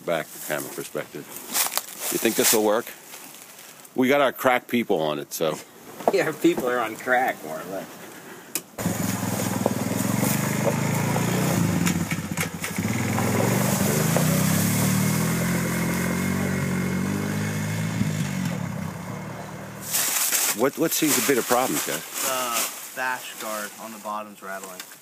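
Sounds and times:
atv engine revving: 8.8 - 20.0.

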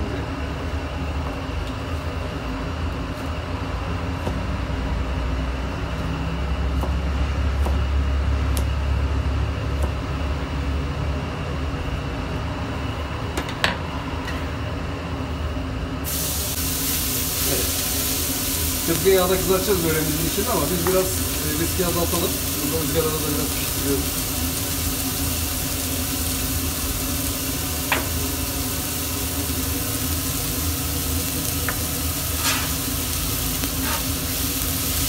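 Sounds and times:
frying hiss on griddle: 16.0 - 35.0.

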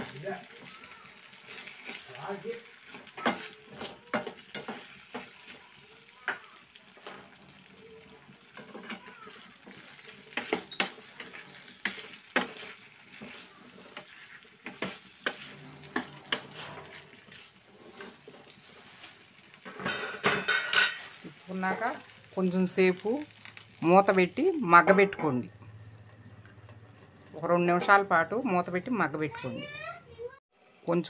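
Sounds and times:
soft sizzle of oil: 0.0 - 31.0
metal ladle scraping a frying pan: 1.4 - 5.6, 8.4 - 21.3.

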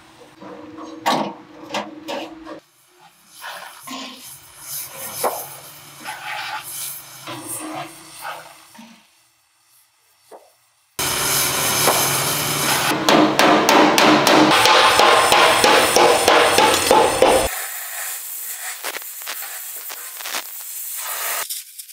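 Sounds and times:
hammer blows on sheet metal: 11.0 - 17.5
loud noise: 11.0 - 17.5.

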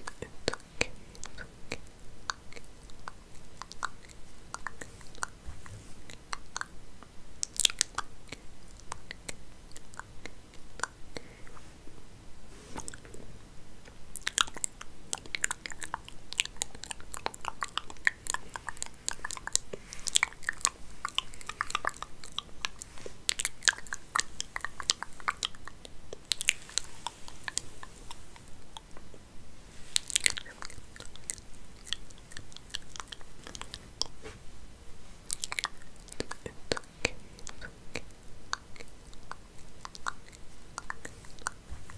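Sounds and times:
hair crackling and scratching: 12.5 - 34.5.

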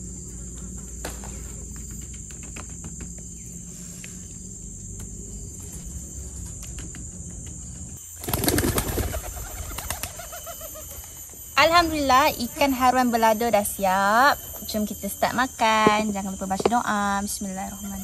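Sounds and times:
outdoor background: 0.0 - 18.0
pigeons flapping wings: 6.5 - 11.1.

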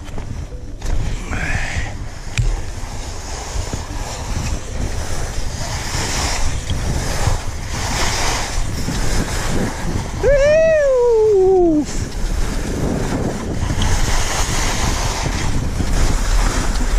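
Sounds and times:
skis scraping over snow: 0.0 - 16.9
wind buffeting microphone: 0.0 - 16.9
person calling out: 10.2 - 11.8.

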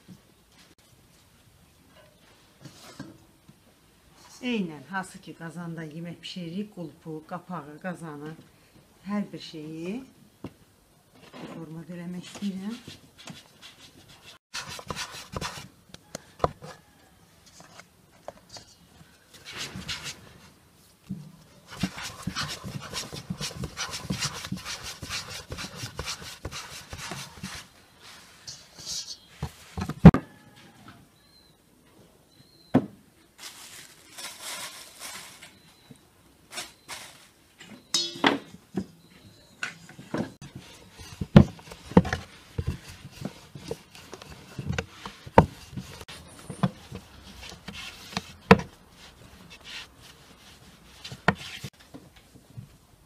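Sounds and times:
hands rubbing and patting dough: 12.4 - 16.1, 21.5 - 30.0, 40.4 - 51.8.

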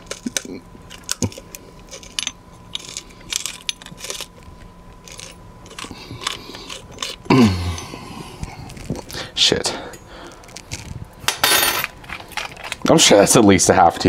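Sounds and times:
pepper grinder crunching clicks: 0.0 - 8.0.

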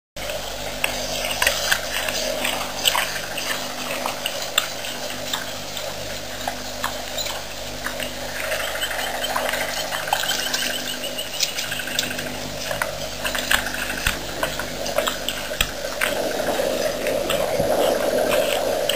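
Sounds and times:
low hum: 0.2 - 18.9
warthog tearing grass: 11.4 - 18.9.

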